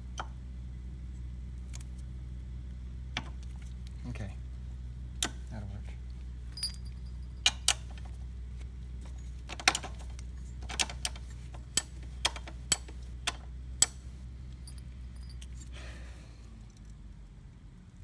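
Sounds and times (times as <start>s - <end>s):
steady low hum: 0.0s - 18.0s
sharp metal clicks and taps: 5.2s - 5.5s, 7.4s - 8.1s, 9.5s - 14.8s.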